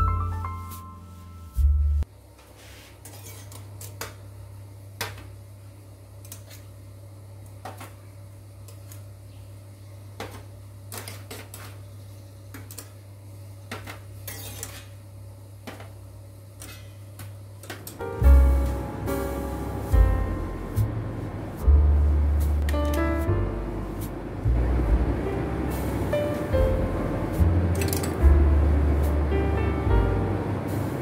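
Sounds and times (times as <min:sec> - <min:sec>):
steady low hum: 0:11.7 - 0:31.0.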